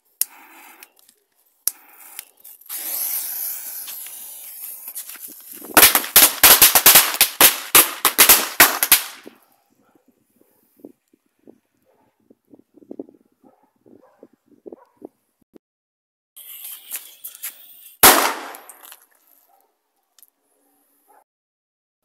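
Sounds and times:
firecracker bangs: 0:05.7 - 0:09.3, 0:18.0 - 0:18.8.

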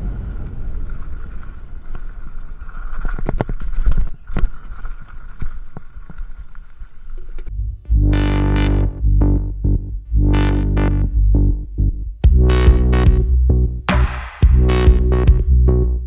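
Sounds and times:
bike tyres rumbling over dirt: 0:00.0 - 0:07.5.

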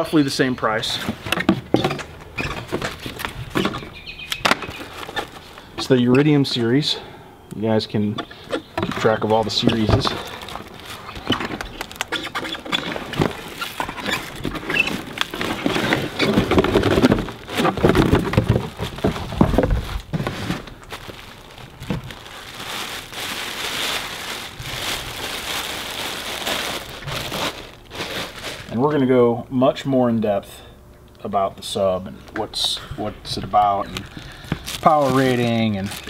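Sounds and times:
plastic bag crinkling: 0:08.3 - 0:28.8, 0:33.8 - 0:36.0.

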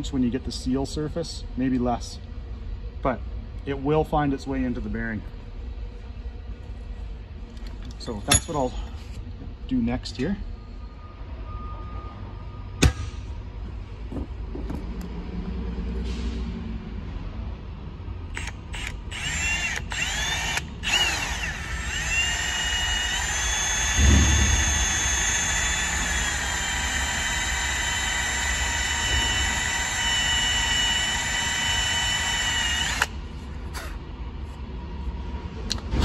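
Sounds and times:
cordless drill whining: 0:18.4 - 0:33.2.

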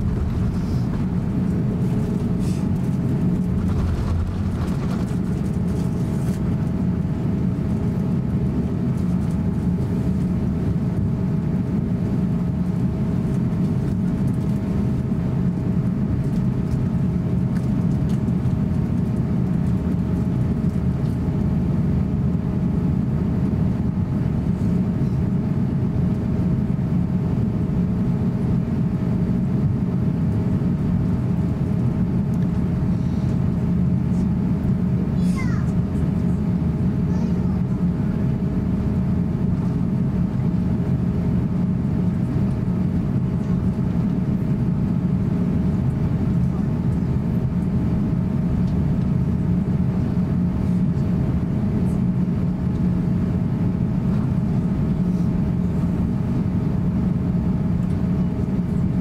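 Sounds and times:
faint steady whine: 0:00.0 - 0:07.0
low rumble of aircraft engines: 0:00.0 - 0:59.0.

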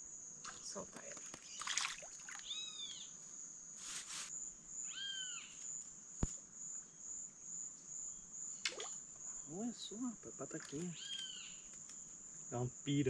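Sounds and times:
high-pitched insect trill: 0:00.0 - 0:13.0
short arching calls: 0:02.4 - 0:03.1, 0:10.7 - 0:11.7.

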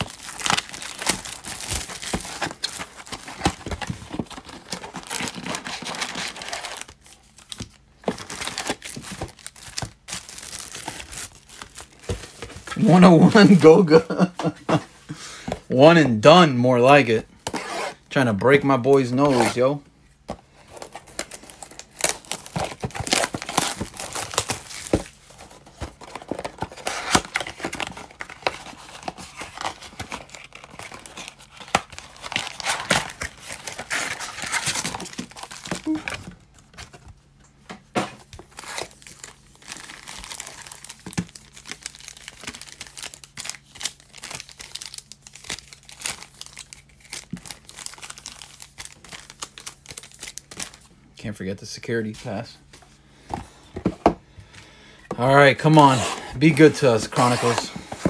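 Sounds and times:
packaging tearing: 0:00.0 - 0:13.6, 0:20.7 - 0:36.3, 0:38.4 - 0:50.8
foil wrappers crinkling: 0:00.0 - 0:14.6, 0:20.4 - 0:37.4, 0:38.2 - 0:50.9, 0:55.2 - 0:58.0.

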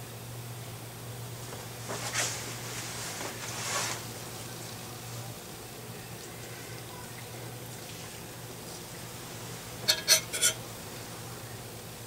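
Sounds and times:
steady low hum: 0:00.0 - 0:12.0
small metal parts clinking: 0:09.8 - 0:10.6.

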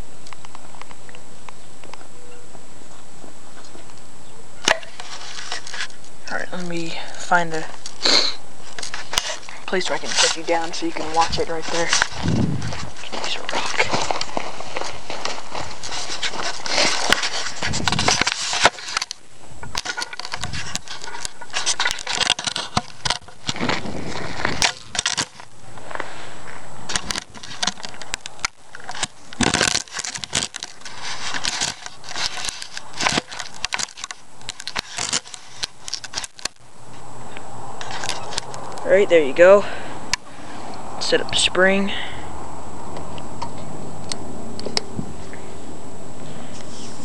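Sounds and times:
stones scraping and crunching: 0:04.6 - 0:37.1, 0:37.8 - 0:39.6.

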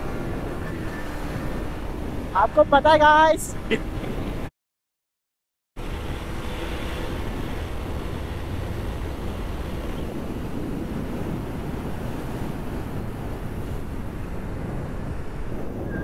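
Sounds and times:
motorcycle engine drone: 0:00.0 - 0:04.5, 0:05.8 - 0:16.0
wind rush on microphone: 0:00.0 - 0:04.5, 0:05.8 - 0:16.0.

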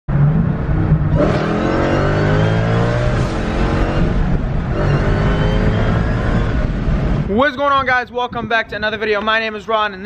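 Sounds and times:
car engine accelerating hard: 0:00.1 - 0:07.3.

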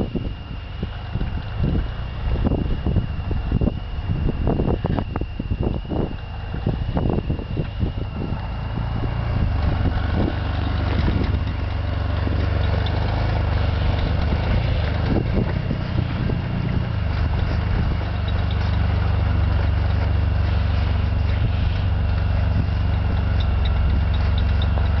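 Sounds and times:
car engine rumbling: 0:00.0 - 0:25.0
power steering pump whine: 0:00.0 - 0:25.0
tyres crunching through snow: 0:05.8 - 0:25.0.

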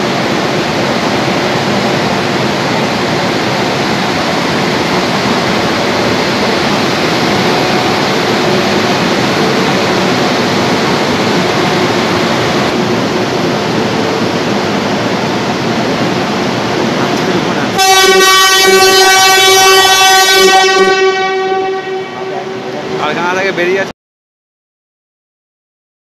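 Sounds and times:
cooling blowers rushing: 0:00.0 - 0:23.9.

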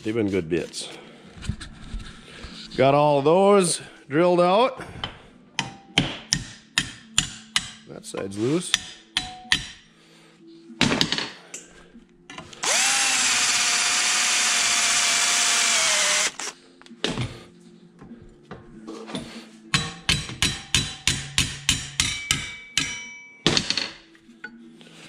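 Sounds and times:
cordless drill whining: 0:12.6 - 0:16.6.

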